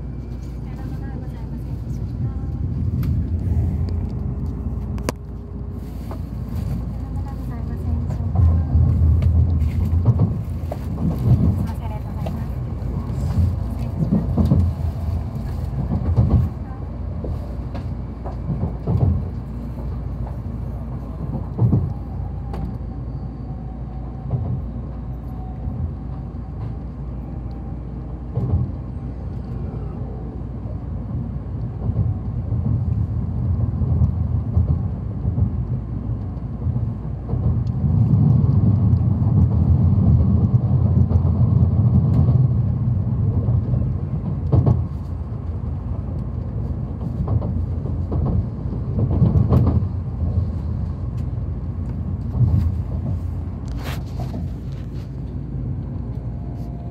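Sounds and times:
train rumbling on the track: 0.0 - 56.9.

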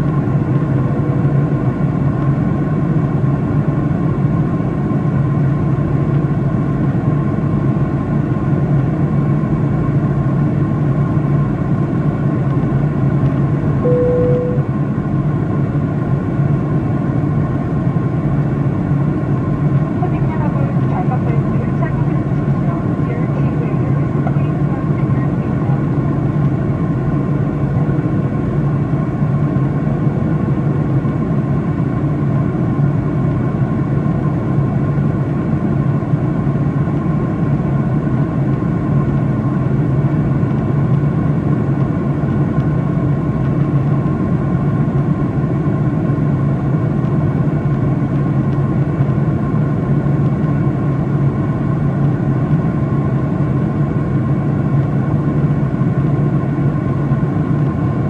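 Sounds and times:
faint steady whine: 13.8 - 15.0.

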